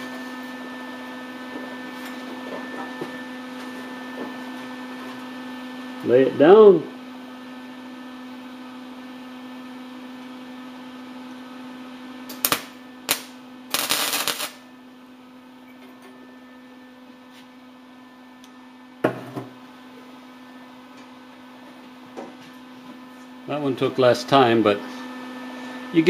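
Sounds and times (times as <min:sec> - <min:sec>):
steady hum: 0:11.3 - 0:22.1
welding arcs crackling: 0:12.3 - 0:14.7.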